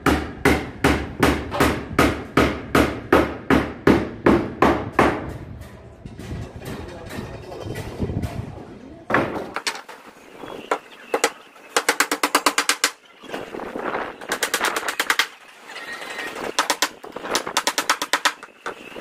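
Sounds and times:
hammer striking nails: 0:00.0 - 0:05.4, 0:11.1 - 0:13.0, 0:16.6 - 0:18.8.

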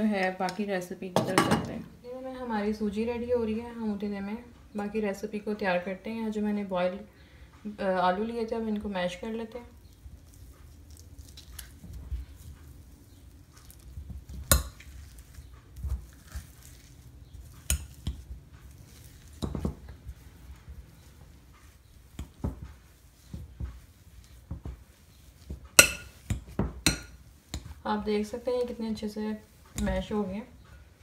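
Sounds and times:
potatoes squashing: 0:09.6 - 0:30.9.

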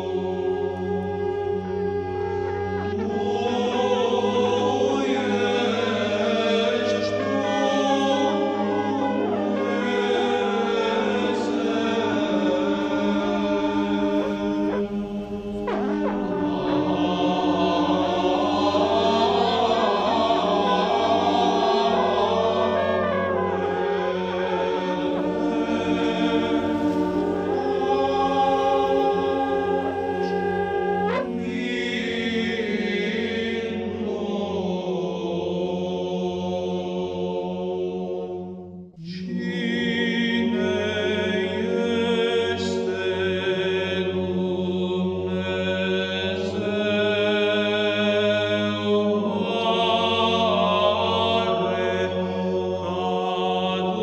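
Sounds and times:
choir chanting: 0:00.0 - 0:54.0
low drone: 0:06.2 - 0:33.0.

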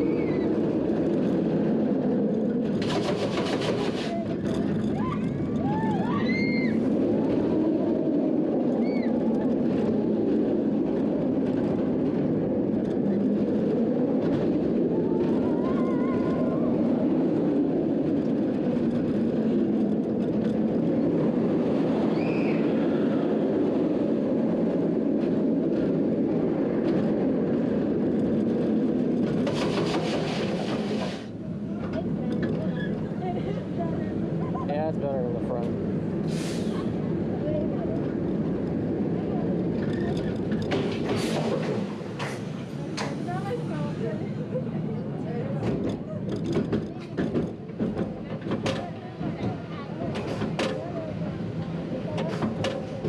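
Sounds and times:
roller coaster rumbling roar: 0:00.0 - 0:53.0
roller coaster brake hiss: 0:29.5 - 0:31.4, 0:36.2 - 0:37.1, 0:40.8 - 0:44.1.

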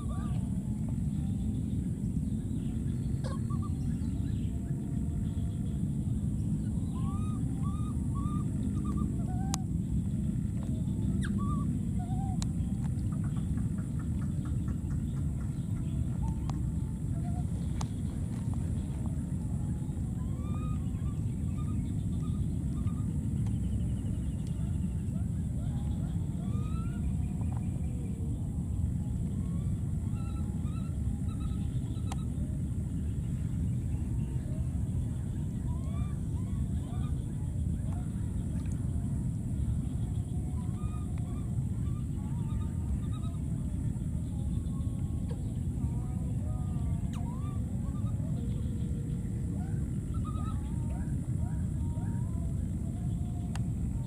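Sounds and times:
low rumble: 0:00.0 - 0:54.0
infant monkey cooing cries: 0:03.2 - 0:03.8.

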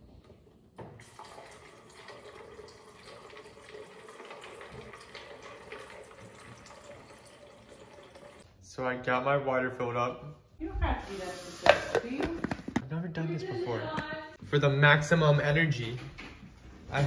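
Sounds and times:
water running into bottle: 0:00.8 - 0:08.4.

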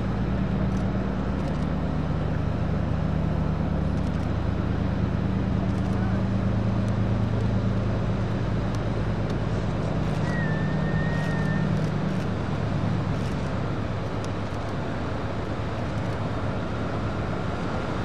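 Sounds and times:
engine drone: 0:00.0 - 0:18.0
high whistle: 0:10.2 - 0:11.8.

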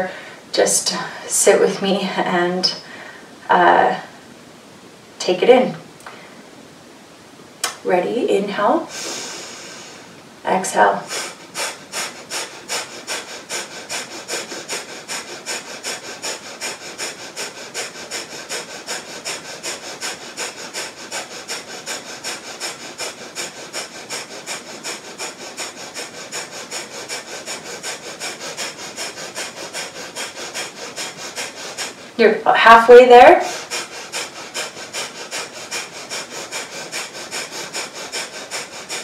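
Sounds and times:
rapid forceful nasal exhales: 0:08.8 - 0:39.0.

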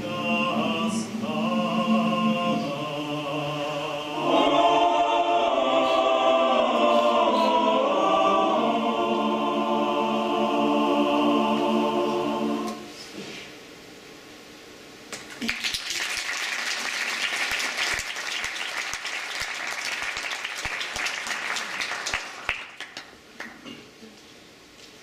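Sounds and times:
men's choir singing a cappella: 0:00.0 - 0:13.0
audience applauding: 0:15.2 - 0:23.6.

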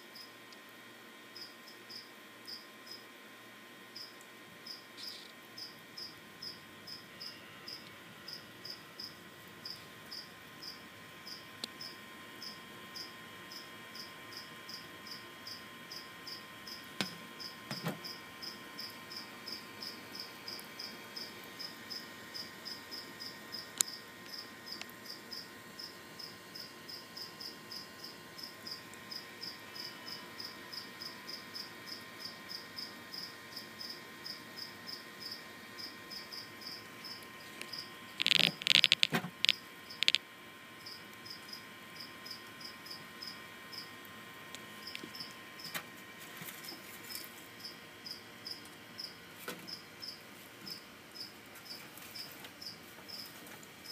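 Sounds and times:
cricket chirping: 0:01.4 - 0:03.1, 0:04.0 - 0:40.2, 0:40.8 - 0:43.9, 0:44.8 - 0:45.4, 0:47.1 - 0:53.9.

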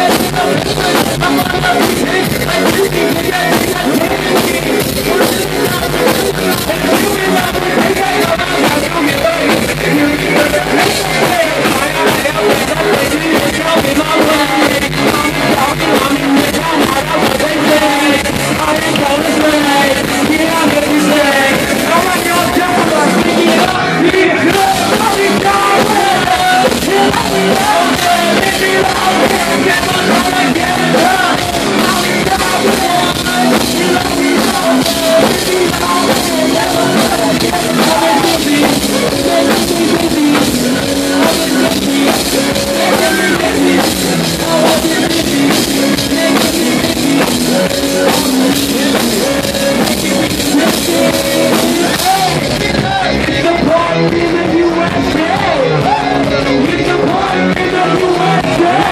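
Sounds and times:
live rock band playing: 0:00.0 - 0:58.9
person singing: 0:00.0 - 0:58.9.

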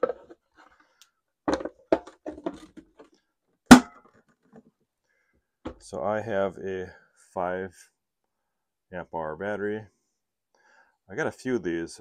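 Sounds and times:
plastic parts knocking: 0:00.0 - 0:00.8, 0:01.4 - 0:04.7.

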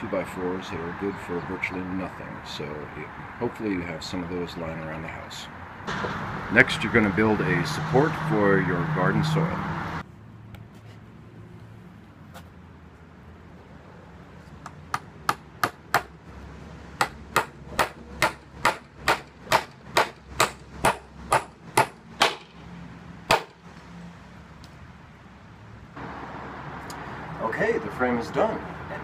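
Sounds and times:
hammer driving nails into wood: 0:17.0 - 0:22.5, 0:23.3 - 0:23.6.

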